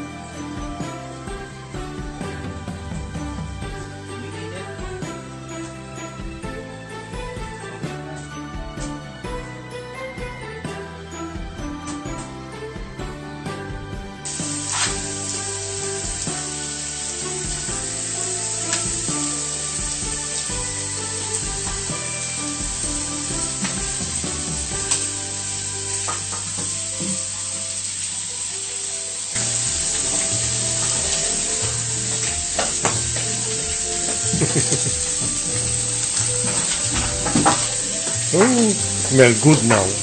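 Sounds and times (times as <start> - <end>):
background music: 0.0 - 40.0
steaks sizzling on a griddle: 14.3 - 40.0.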